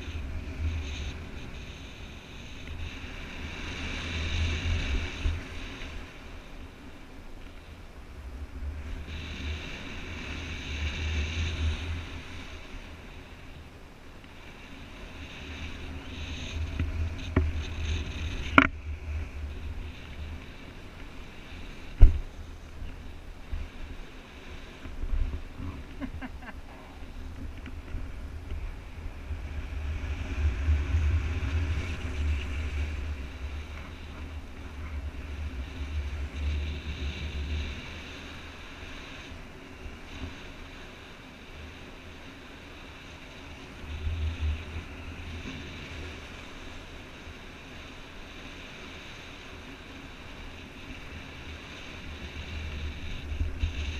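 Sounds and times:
wind rushing over microphone: 0.0s - 53.9s.

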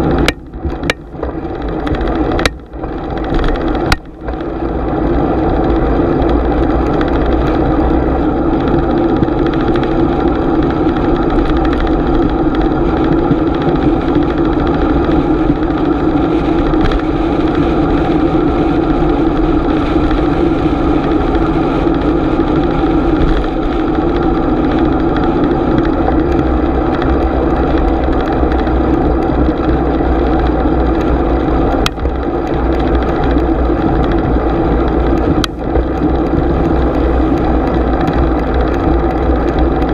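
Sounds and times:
bicycle rolling on road: 0.0s - 39.9s.

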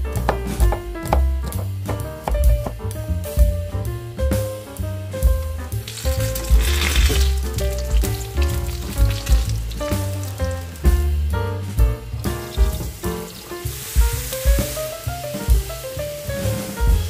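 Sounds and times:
background music: 0.0s - 17.0s
eggplant frying in oil: 4.7s - 17.0s.

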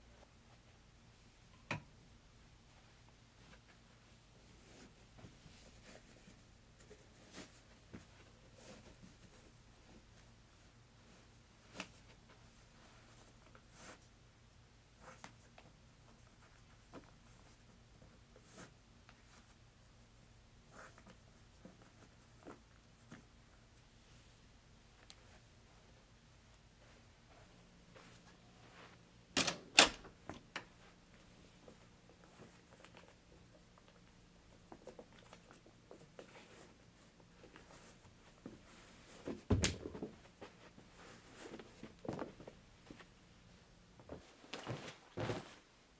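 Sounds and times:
faint taps and rustles: 30.2s - 43.2s, 44.0s - 45.6s
sneaker thump on carpet: 39.3s - 40.2s.

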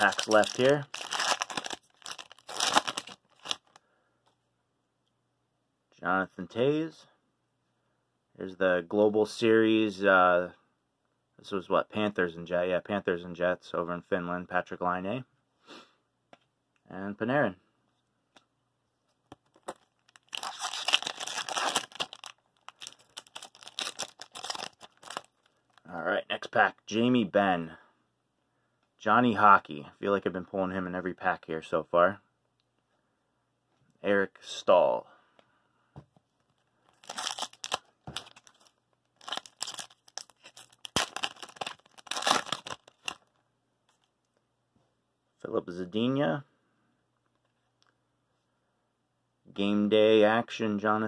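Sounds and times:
plastic wrapper crinkling: 0.0s - 3.8s, 19.4s - 25.9s, 36.9s - 44.1s.

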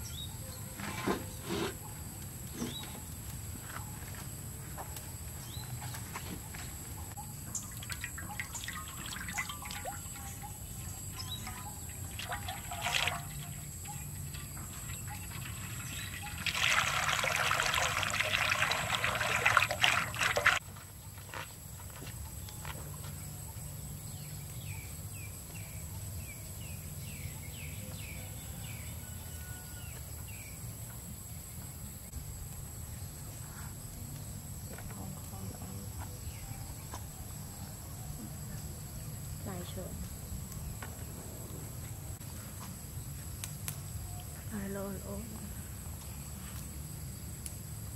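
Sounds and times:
outdoor ambience: 0.0s - 47.9s
oil pouring into wok: 11.4s - 20.6s.

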